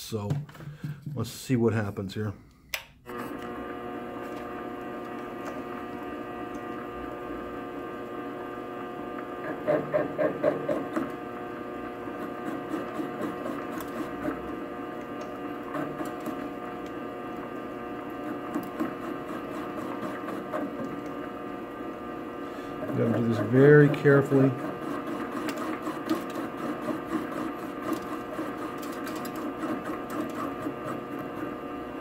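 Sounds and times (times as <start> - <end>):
lathe motor humming: 3.1 - 32.0
lathe tool cutting metal: 22.6 - 31.6.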